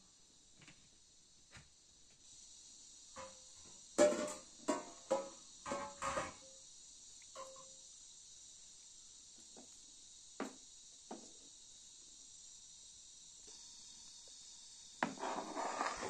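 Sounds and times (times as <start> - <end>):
crickets chirring: 0.0 - 16.0.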